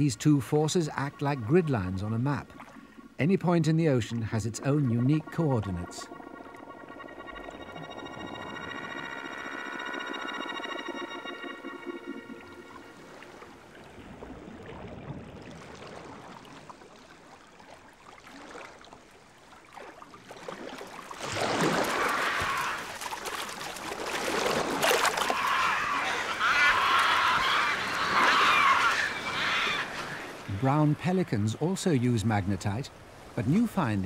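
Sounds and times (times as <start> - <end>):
seabird calls: 0.0 - 14.2, 21.6 - 34.0
faint underwater ambience: 0.0 - 34.0
loud splashing: 19.8 - 31.0
wings flapping: 21.6 - 30.5.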